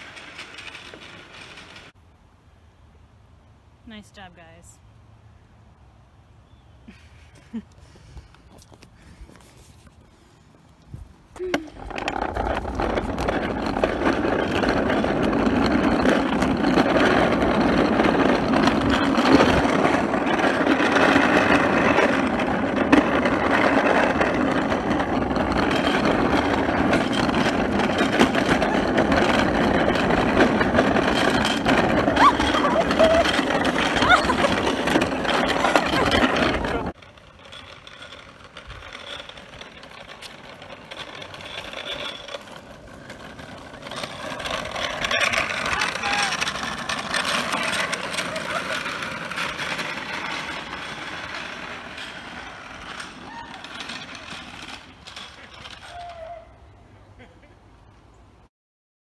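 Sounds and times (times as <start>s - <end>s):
small hard wheels rolling on asphalt: 0.0s - 2.6s, 3.2s - 58.5s.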